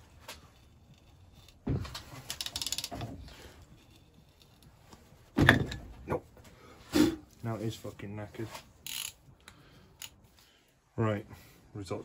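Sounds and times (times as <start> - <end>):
ratchet wrench clicking: 2.3 - 3.0, 8.8 - 10.2.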